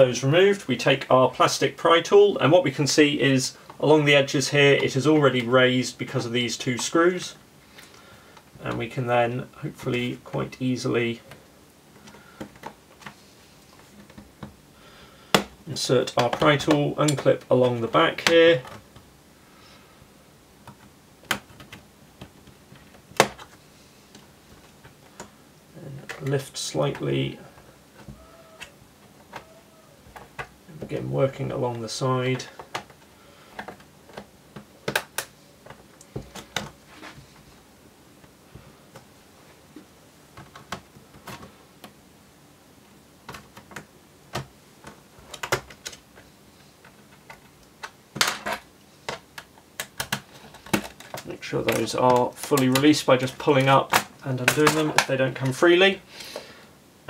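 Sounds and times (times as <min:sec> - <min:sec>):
plastic clips snapping: 0:47.2 - 0:52.8.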